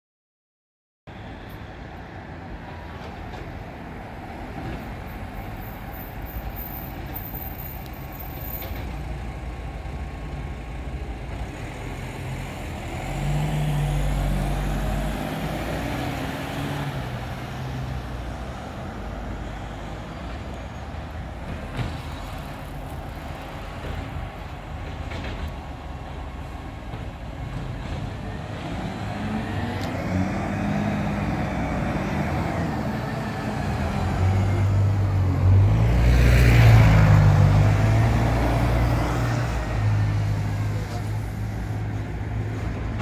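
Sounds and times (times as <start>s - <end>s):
road noise: 1.1s - 43.0s
garbage truck diesel engine: 8.4s - 36.0s, 36.6s - 43.0s.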